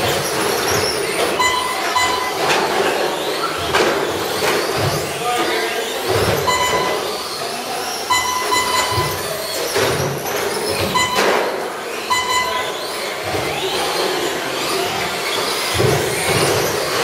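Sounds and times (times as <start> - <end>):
trucks knocking on boards: 8.1 - 12.5, 15.5 - 17.0.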